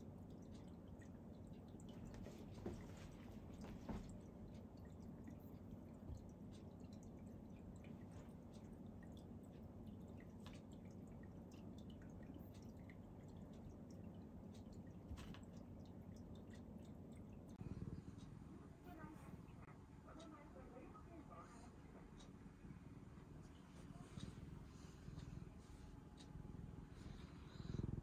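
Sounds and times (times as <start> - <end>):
small clicks and ticks: 0.0 - 19.1
low steady hum: 0.0 - 28.0.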